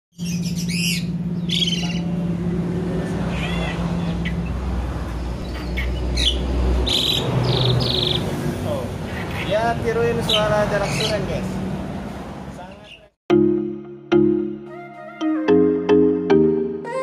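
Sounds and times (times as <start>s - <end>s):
bird chirping and buzzing: 0.2s - 8.4s.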